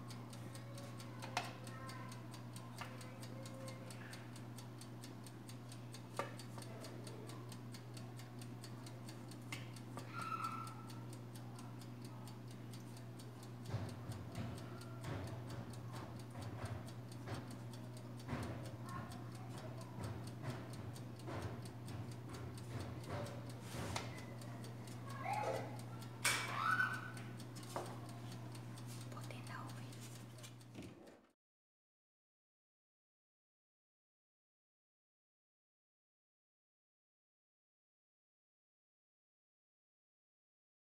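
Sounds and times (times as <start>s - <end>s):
steady ticking: 0.0s - 30.7s.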